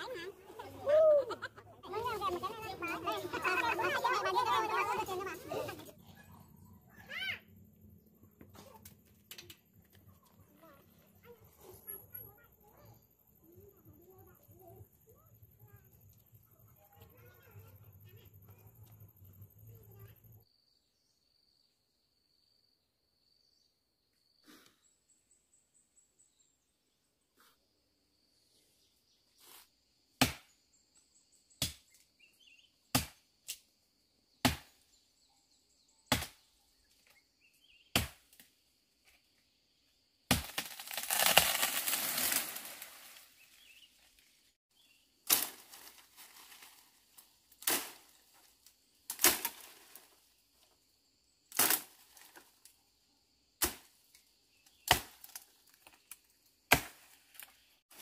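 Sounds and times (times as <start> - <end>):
machete chopping wood: 30.2 - 30.6, 31.6 - 31.9, 32.9 - 33.6, 34.4 - 34.8, 36.1 - 36.5, 37.9 - 38.5, 40.3 - 41.9, 53.6 - 53.9, 54.8 - 55.4, 56.7 - 57.2
tree crashing through brush: 40.3 - 43.6, 45.2 - 47.0, 49.1 - 50.1.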